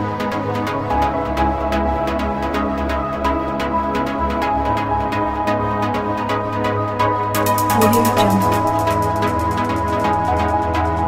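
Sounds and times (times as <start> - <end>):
electronic music with beat and bass: 7.3 - 11.0.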